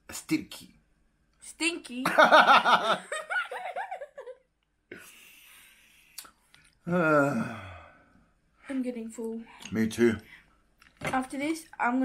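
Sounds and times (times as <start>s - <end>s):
people laughing: 2.1s - 4.4s.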